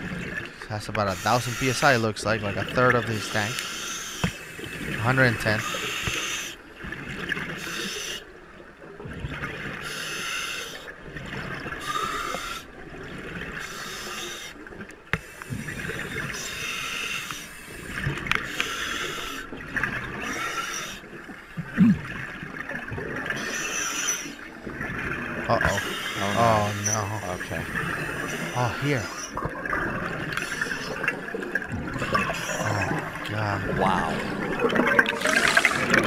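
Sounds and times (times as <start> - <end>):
diver breathing through regulator: 1.1 - 2.1, 11.8 - 12.7, 13.6 - 14.6, 15.2 - 19.5, 25.7 - 26.7.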